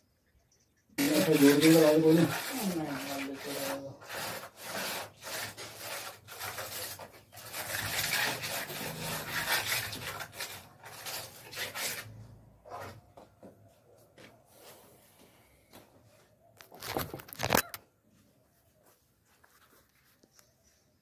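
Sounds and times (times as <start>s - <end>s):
scraping on hard surface: 1.0s - 13.4s.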